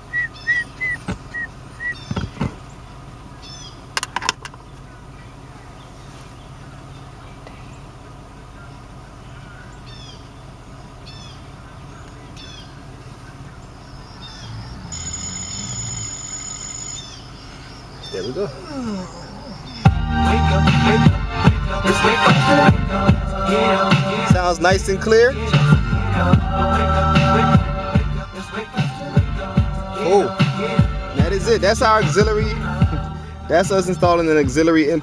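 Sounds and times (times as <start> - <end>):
car engine idling: 0.0 - 35.0
short high chirps: 14.4 - 17.3
multi-pitch electronic tone: 14.6 - 17.1
short electronic beeps: 14.8 - 17.1.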